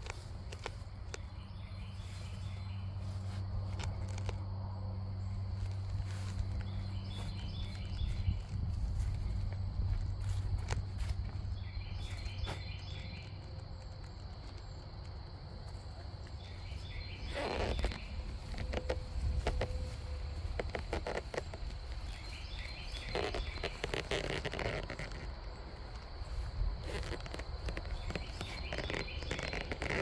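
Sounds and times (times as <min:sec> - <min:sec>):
steady low rumble: 0:00.0 - 0:23.0
footsteps rustling through grass: 0:00.0 - 0:30.0
faint chirping: 0:00.1 - 0:30.0.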